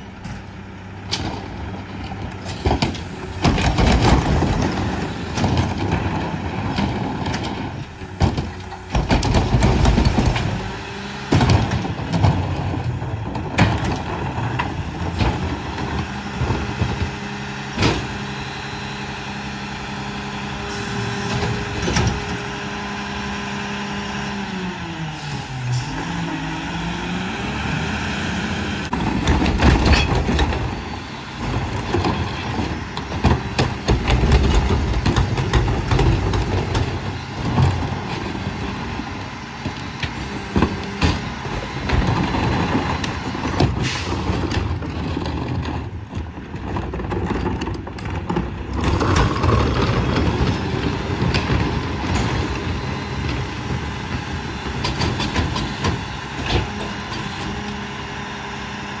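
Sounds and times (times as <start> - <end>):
garbage truck engine under load: 0.0 - 59.0
bins banging: 1.1 - 17.2, 28.9 - 57.7.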